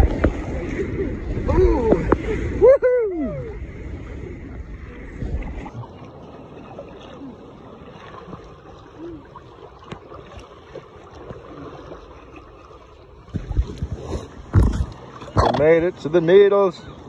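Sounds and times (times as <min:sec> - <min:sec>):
wind on microphone: 0:00.0 - 0:05.9, 0:13.3 - 0:15.6
paddles stroking through water: 0:00.0 - 0:17.0
water lapping against kayak hull: 0:00.0 - 0:17.0.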